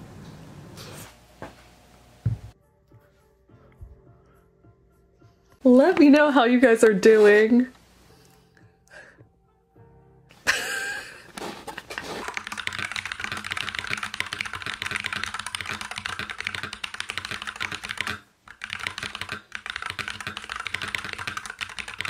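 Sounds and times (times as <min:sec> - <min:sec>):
typing on computer keyboard: 0:11.8 - 0:22.0.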